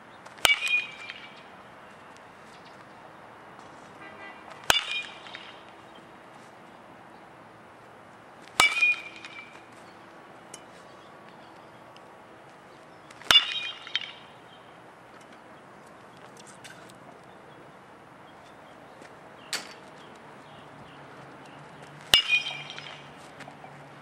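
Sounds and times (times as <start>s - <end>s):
metal bat hitting baseball: 0.4s - 1.5s, 4.6s - 5.8s, 8.5s - 10.7s, 13.1s - 14.4s, 19.5s - 19.9s, 22.0s - 23.2s.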